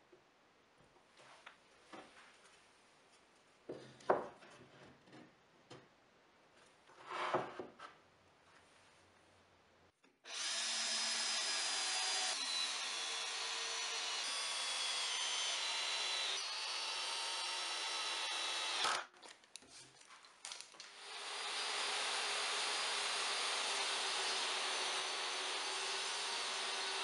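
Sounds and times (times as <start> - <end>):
cordless drill driving screws: 10.3 - 19.1.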